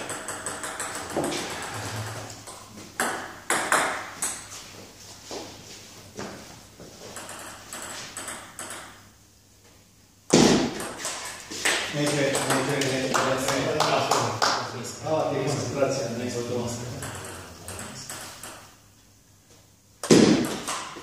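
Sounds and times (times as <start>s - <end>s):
table tennis ball ticking: 0.0s - 1.3s
loud sharp knock: 10.3s - 10.8s, 20.0s - 20.8s.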